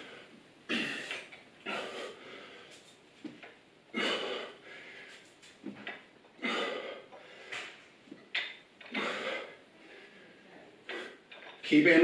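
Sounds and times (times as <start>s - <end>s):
man breathing out hard: 6.4s - 7.8s, 8.9s - 10.4s.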